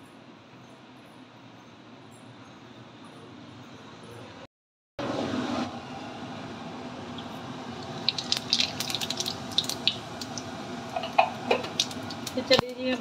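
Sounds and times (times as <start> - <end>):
hot oil sizzling: 6.6 - 13.0
spice seeds crackling and popping: 7.8 - 10.5, 11.6 - 13.0.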